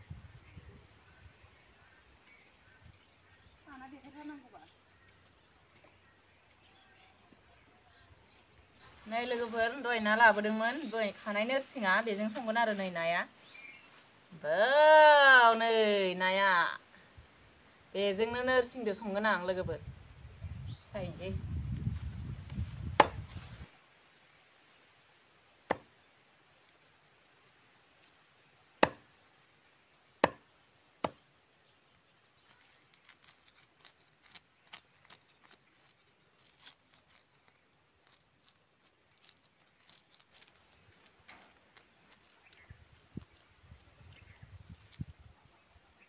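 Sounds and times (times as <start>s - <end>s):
knife chopping onto wooden block: 23.0s - 23.2s, 25.7s - 25.9s, 28.8s - 29.0s, 30.2s - 30.4s.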